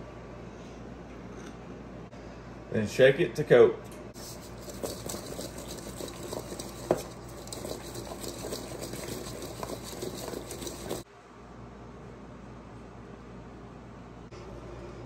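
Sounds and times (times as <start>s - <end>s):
potato cubes shaken in metal bowl: 4.2s - 11.0s.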